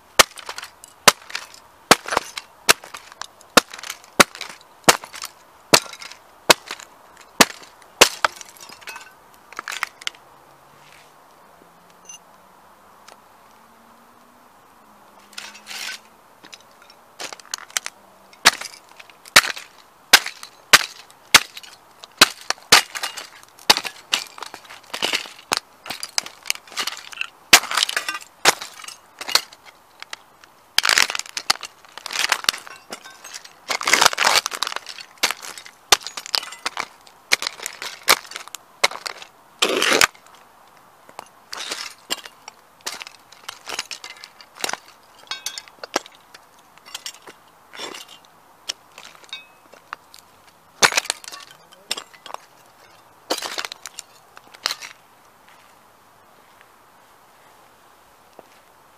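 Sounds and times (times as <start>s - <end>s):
crunching and grinding: 0.0s - 10.2s, 15.2s - 55.7s.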